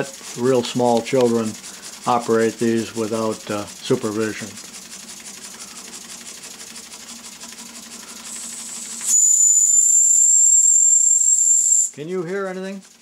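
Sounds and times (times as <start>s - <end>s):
high thin steam whistle: 8.2s - 12.0s.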